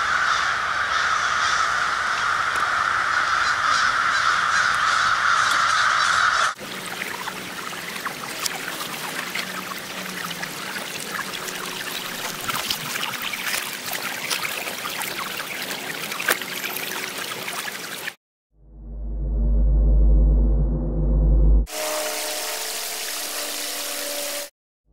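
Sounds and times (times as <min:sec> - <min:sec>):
crows cawing: 0:00.0 - 0:06.6
stream babbling over pebbles: 0:06.6 - 0:18.2.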